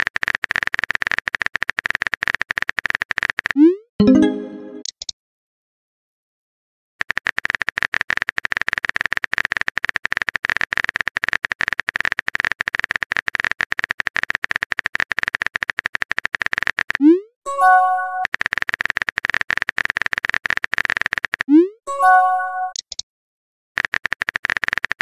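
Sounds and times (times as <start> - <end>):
phone keyboard typing clicks: 14.1 - 17.0, 18.0 - 21.5, 23.8 - 25.0.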